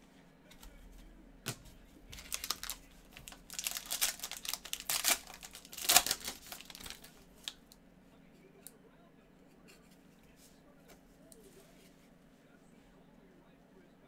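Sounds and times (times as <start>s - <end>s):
foil wrapper crinkling and tearing: 2.1s - 7.8s.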